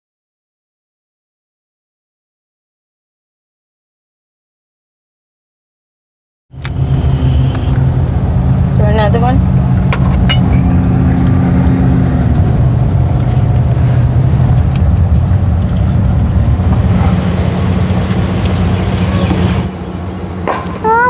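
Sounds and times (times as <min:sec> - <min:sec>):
car engine and tyre drone: 0:06.5 - 0:21.0.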